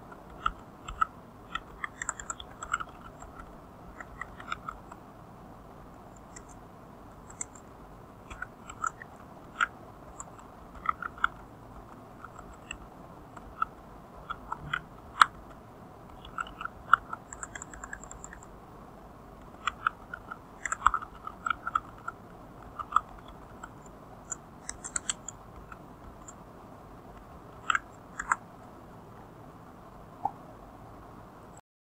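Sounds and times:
computer keyboard typing: 0.1s - 5.0s, 7.2s - 7.7s, 8.3s - 11.4s, 12.2s - 12.8s, 16.1s - 18.5s, 19.4s - 26.4s, 27.6s - 28.4s.

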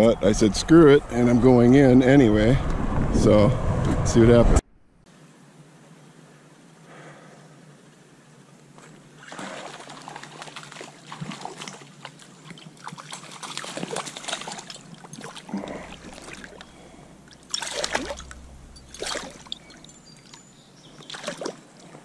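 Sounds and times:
water splashing from wading: 9.1s - 20.4s, 21.0s - 21.8s.

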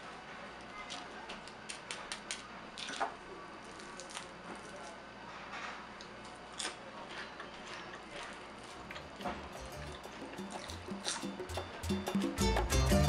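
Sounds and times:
crispy food crunching: 0.9s - 5.0s, 6.0s - 11.3s.

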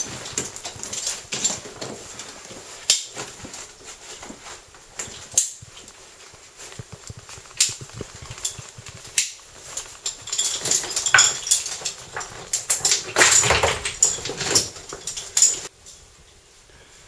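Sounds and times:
metal gear clinking on rock: 0.0s - 3.7s, 6.6s - 15.7s
scuffing: 0.0s - 13.2s.

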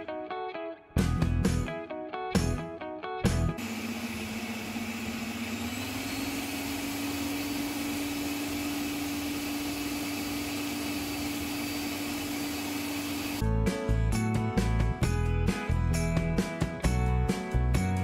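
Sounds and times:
stand mixer motor hum: 3.6s - 13.4s.

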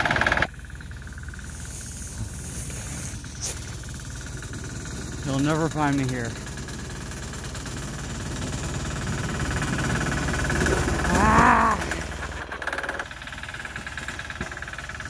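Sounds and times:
small diesel engine knocking: 0.0s - 15.0s
short wavering call: 10.9s - 12.2s.

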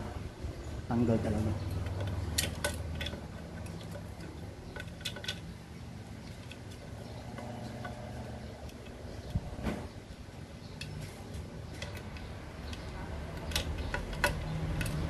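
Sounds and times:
low steady hum: 0.0s - 15.0s
metallic clicks and ticks: 10.7s - 15.0s.

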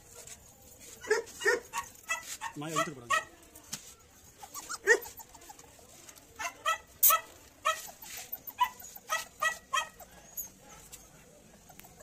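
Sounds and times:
puppies yelping and whimpering: 4.4s - 5.6s.

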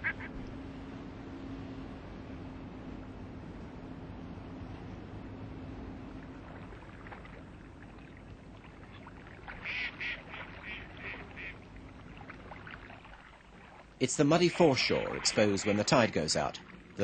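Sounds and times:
ducks quacking: 0.0s - 0.4s, 9.5s - 11.6s
steady low hum: 0.0s - 17.0s.

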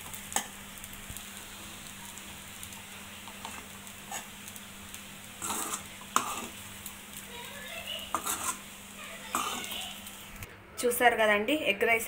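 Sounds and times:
rice sizzling in a pan: 0.0s - 10.5s
steel spoon scraping a pan: 3.4s - 4.3s, 5.4s - 6.6s, 8.0s - 8.7s, 9.3s - 9.8s.

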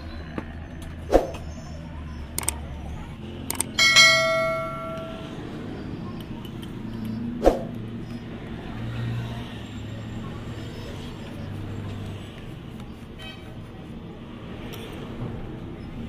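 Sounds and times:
ringing metal clang: 3.7s - 5.4s.

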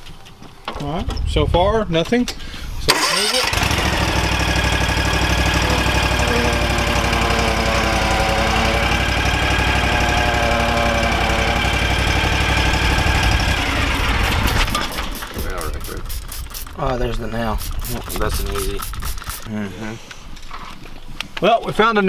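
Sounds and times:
lawn mower engine running: 2.9s - 16.8s, 17.6s - 19.5s.

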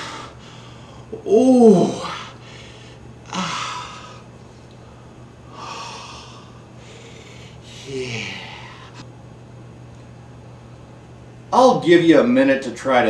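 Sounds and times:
man moaning: 0.0s - 4.3s, 5.5s - 9.0s
man sighing: 0.0s - 4.3s, 5.5s - 9.0s.

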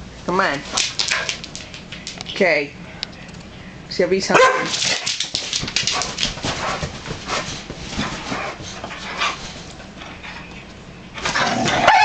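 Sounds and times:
dogs scuffling: 0.5s - 2.4s, 4.4s - 10.4s
dogs panting: 5.1s - 10.5s.

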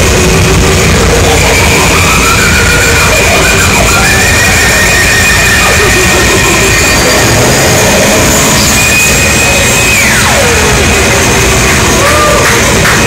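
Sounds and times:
dense wall of harsh noise: 0.0s - 13.0s
sliding oscillator tones: 0.0s - 13.0s
steady high whistle: 1.2s - 11.3s.

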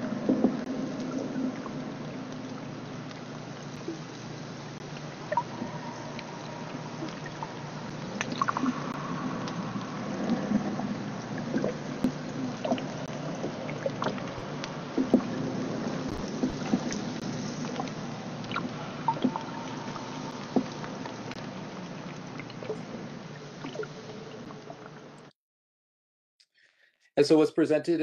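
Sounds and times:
low underwater hum: 0.0s - 25.3s
water noise: 0.0s - 25.3s
sharp clicks and pops: 5.0s - 9.6s, 11.5s - 15.4s, 16.1s - 21.5s.

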